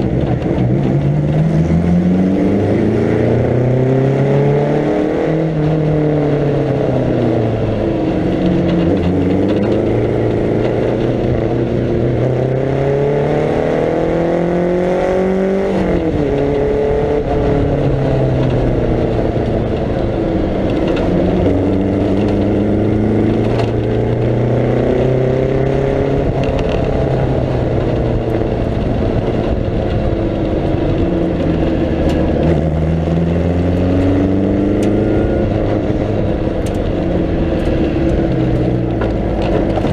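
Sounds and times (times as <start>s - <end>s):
racing car engine revving: 0.0s - 39.9s.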